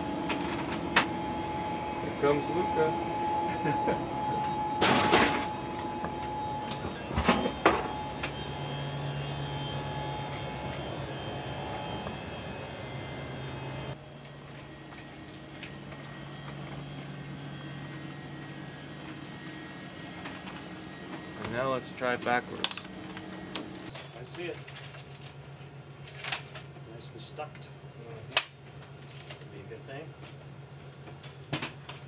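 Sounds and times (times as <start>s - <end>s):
low steady drone: 0.0s - 24.0s
cabin fans humming: 0.0s - 32.0s.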